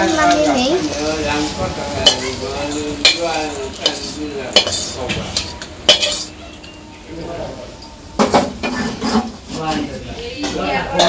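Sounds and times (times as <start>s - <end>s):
hot oil sizzling: 0.0s - 11.0s
metal spatula scraping a pan: 2.0s - 6.5s, 8.5s - 9.8s.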